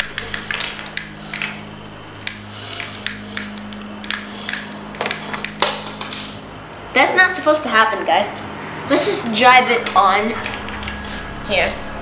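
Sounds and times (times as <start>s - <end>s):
toy car motor whirring: 0.0s - 6.4s
steady low hum: 0.0s - 12.0s.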